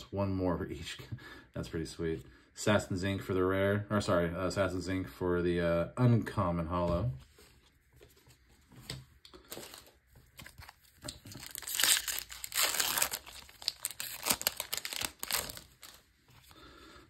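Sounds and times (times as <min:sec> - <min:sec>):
foil wrapper crinkling and tearing: 0:09.4 - 0:16.1.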